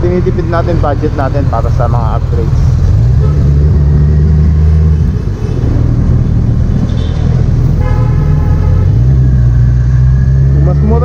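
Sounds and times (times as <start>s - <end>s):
road and wind rumble: 0.0s - 11.0s
vehicle horn: 3.2s - 3.6s, 6.9s - 9.1s.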